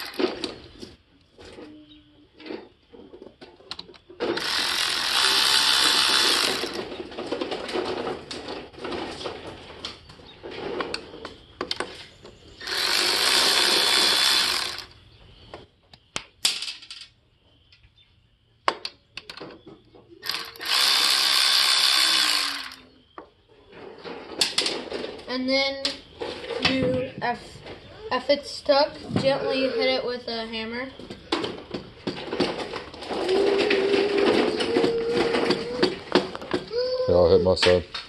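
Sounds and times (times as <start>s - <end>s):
power ratchet whining: 0.0s - 0.5s, 4.2s - 7.0s, 12.6s - 15.0s, 20.2s - 22.9s
tool and nuts clicking: 0.0s - 0.5s, 3.7s - 7.0s, 12.6s - 15.0s, 20.2s - 22.9s.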